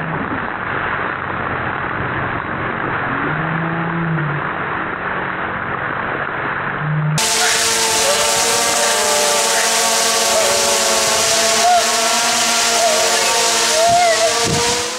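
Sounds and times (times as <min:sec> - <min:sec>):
low drawn-out voice-like tone: 0:07.0 - 0:14.9
steady multi-tone hum: 0:07.2 - 0:14.9.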